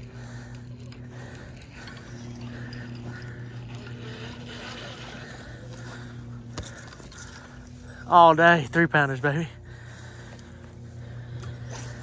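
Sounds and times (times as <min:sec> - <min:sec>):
fishing rod and reel handling: 0:00.0 - 0:07.8
steady low hum: 0:00.0 - 0:12.0.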